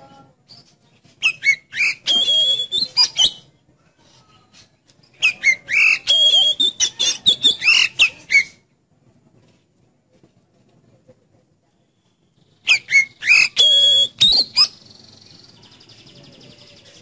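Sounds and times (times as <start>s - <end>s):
bird singing whistled notes: 0.4s - 3.5s, 5.1s - 8.6s, 12.0s - 17.0s.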